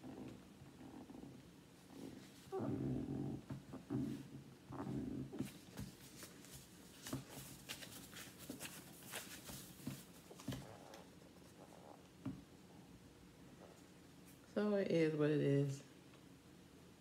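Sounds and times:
tissue rubbing on screen: 5.4s - 11.5s.

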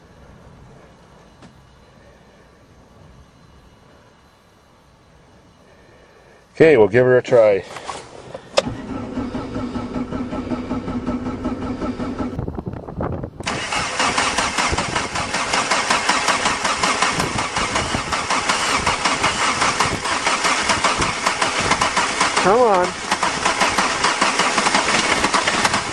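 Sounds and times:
starter cranking diesel engine: 7.7s - 12.5s, 13.4s - 25.9s.

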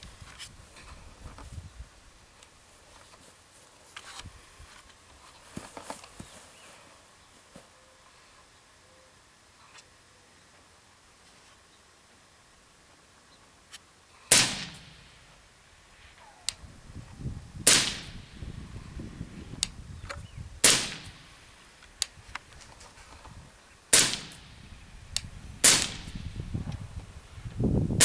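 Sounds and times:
suppressed rifle shots: 14.3s - 15.2s, 17.7s - 18.3s, 20.6s - 21.3s, 23.9s - 24.6s, 25.6s - 26.2s.

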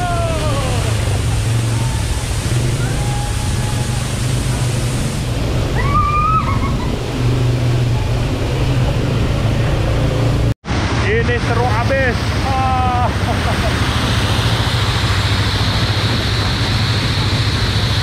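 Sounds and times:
atv engine running: 0.0s - 5.8s
rushing sloshing noise: 0.0s - 18.0s.

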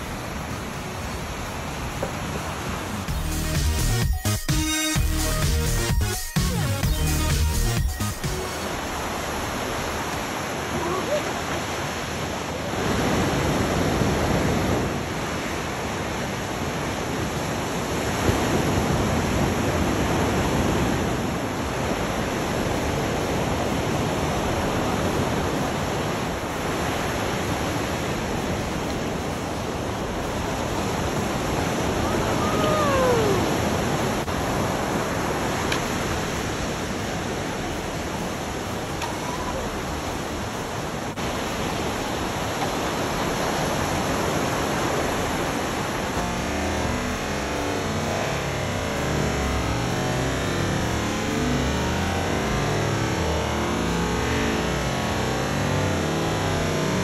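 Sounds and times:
ocean waves breaking: 0.0s - 3.1s, 8.1s - 53.0s.

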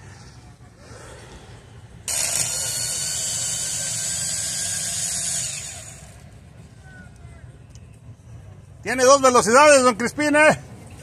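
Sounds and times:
power tool motor whirring: 2.1s - 6.3s.

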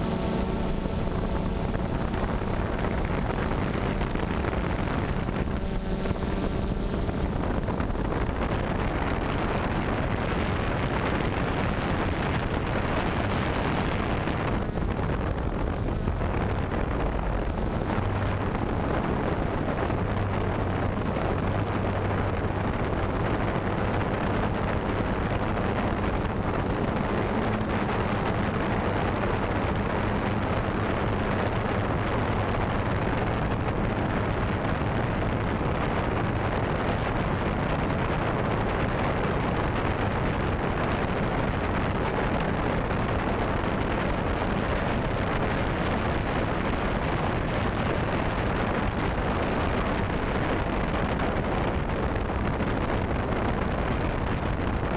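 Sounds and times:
wind rushing: 0.0s - 40.9s
drone propeller noise: 0.0s - 46.2s
low hum: 0.0s - 54.9s.

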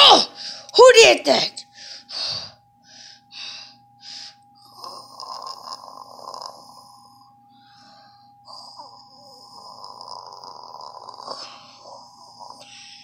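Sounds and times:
person making snoring noises: 4.8s - 7.0s, 8.5s - 13.0s
faint steady high tone: 6.5s - 10.0s, 11.0s - 13.0s.

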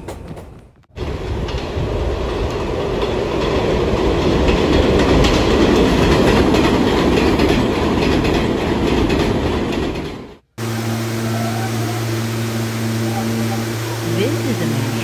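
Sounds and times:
wheels clattering over rail joints: 0.0s - 10.4s
subway train rumbling: 0.0s - 15.0s.

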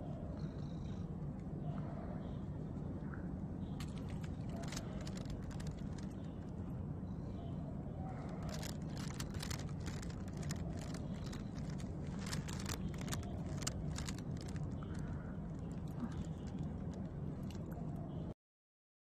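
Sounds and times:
light clicks and rustles: 3.6s - 6.7s, 8.0s - 18.2s.

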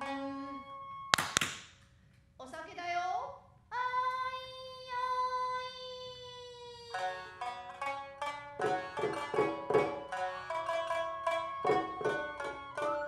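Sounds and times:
shamisen plucked notes: 0.0s - 1.2s, 6.9s - 13.0s.

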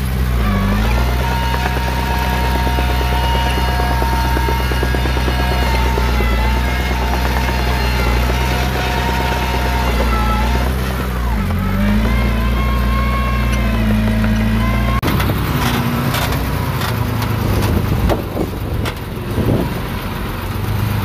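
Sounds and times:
rapid clatter: 0.0s - 19.2s
diesel machine engine running: 0.0s - 21.0s
high whine: 0.4s - 15.2s.

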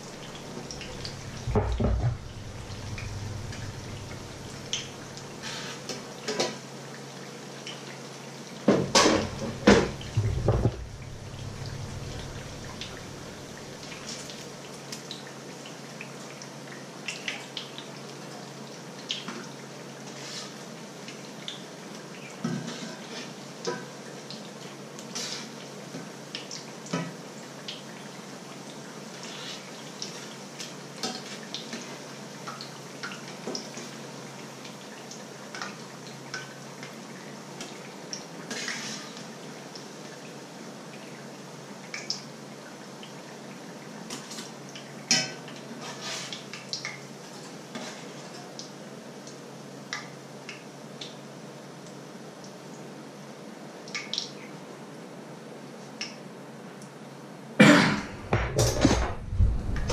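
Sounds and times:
oil sizzling: 0.0s - 5.9s, 7.0s - 15.2s.

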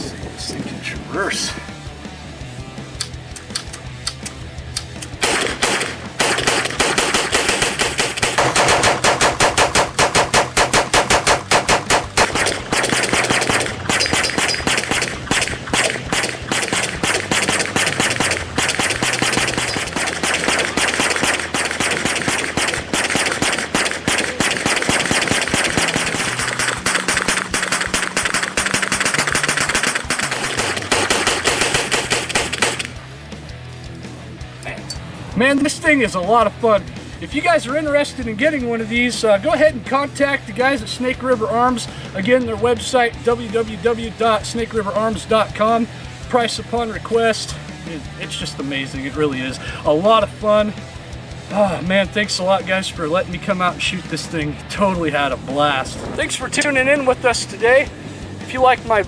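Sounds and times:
hand-cranked gatling gun rapid firing: 3.5s - 33.0s.

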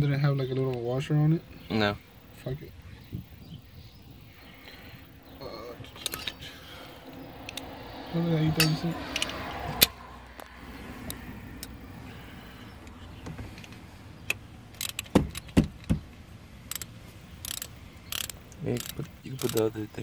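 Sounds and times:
metal tools clinking and knocking: 8.5s - 9.4s
ratchet wrench clicks: 14.3s - 15.5s, 16.7s - 19.8s.

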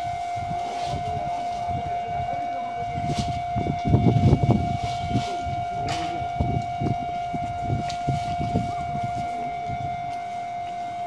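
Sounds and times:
level-crossing warning bell: 0.0s - 11.0s.

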